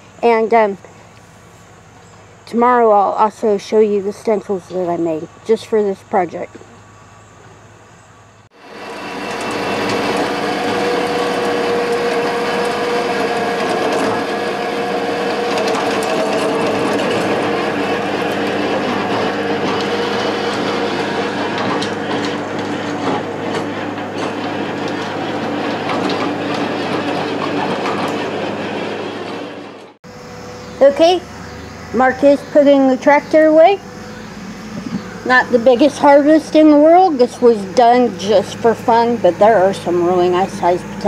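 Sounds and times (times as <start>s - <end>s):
tractor engine running: 8.4s - 41.0s.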